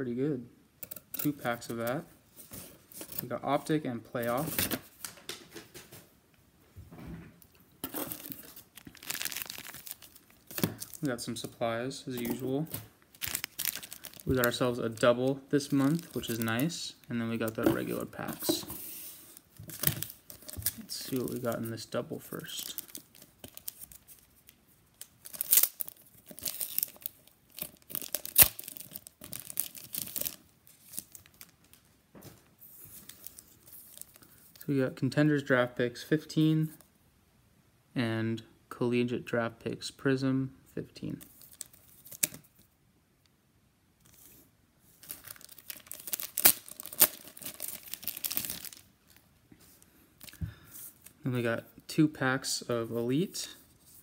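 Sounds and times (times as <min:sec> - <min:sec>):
plastic wrapper crinkling: 0:07.8 - 0:31.9, 0:32.8 - 0:34.7, 0:41.2 - 0:42.7, 0:44.1 - 0:51.2.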